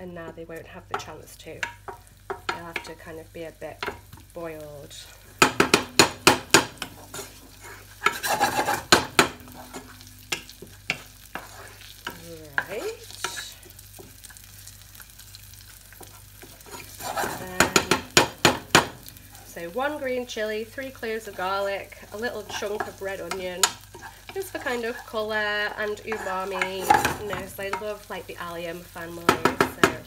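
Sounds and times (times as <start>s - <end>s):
onion frying with low sizzle: 0.0s - 30.0s
wooden spoon knocking on saucepan: 5.4s - 7.0s, 17.6s - 19.1s, 29.2s - 30.0s.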